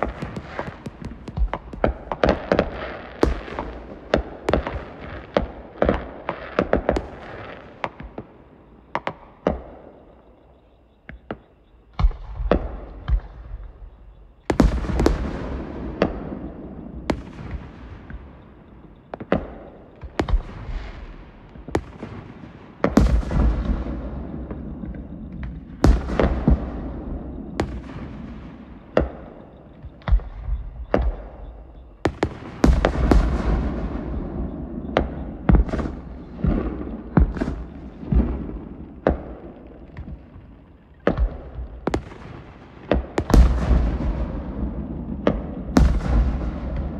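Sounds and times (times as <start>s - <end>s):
fireworks pops and bangs: 0.0s - 10.2s, 11.0s - 46.9s
deep firework shell bursts: 14.5s - 46.9s.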